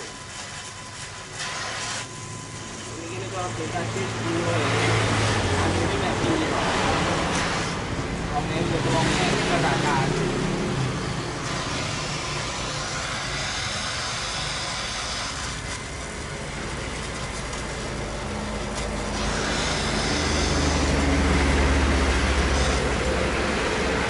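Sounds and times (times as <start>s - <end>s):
welding torch hissing: 0.0s - 24.0s
engine rumbling: 15.7s - 24.0s.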